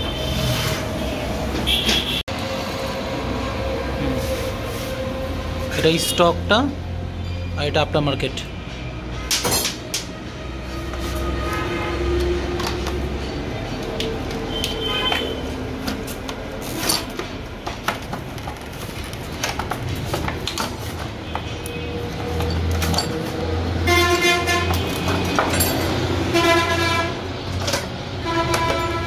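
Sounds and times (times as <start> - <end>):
vehicle horn: 0.0 - 2.4, 14.5 - 15.6, 23.8 - 25.0, 26.2 - 27.3, 28.2 - 29.0.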